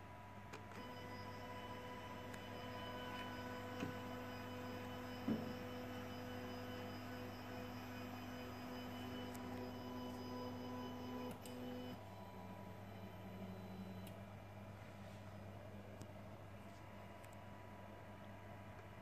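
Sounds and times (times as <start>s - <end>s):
stepper motor whining: 0.8s - 12.7s.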